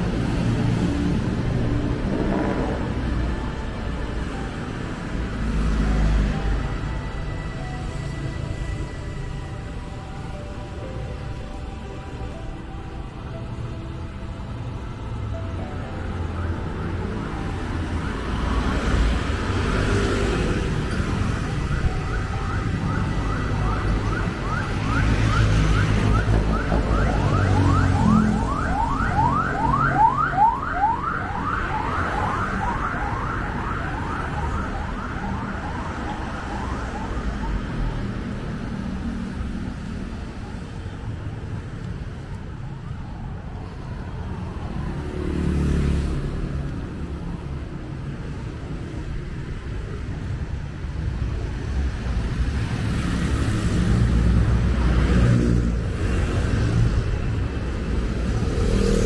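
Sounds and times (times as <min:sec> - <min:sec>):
road traffic rumble: 0:00.0 - 0:59.0
emergency siren yelping: 0:19.9 - 0:38.3.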